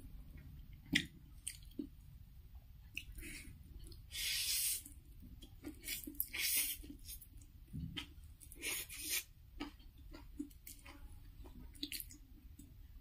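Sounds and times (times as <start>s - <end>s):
wet chewing: 2.9s - 12.7s.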